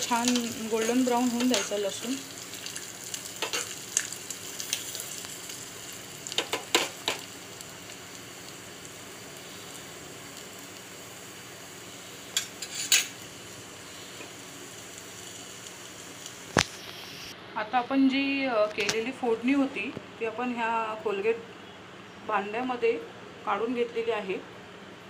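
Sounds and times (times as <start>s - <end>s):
spoon scraping against pan: 0.0s - 1.8s, 12.4s - 13.2s
garlic sizzling in hot oil: 0.0s - 17.4s.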